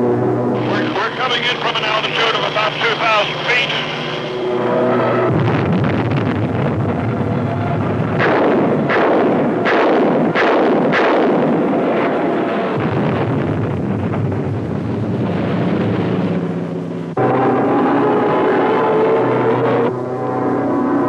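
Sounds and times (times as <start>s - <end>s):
aircraft engine and wind rush: 0.0s - 18.3s
sharp gun firing reports: 0.6s - 4.4s, 8.1s - 14.6s.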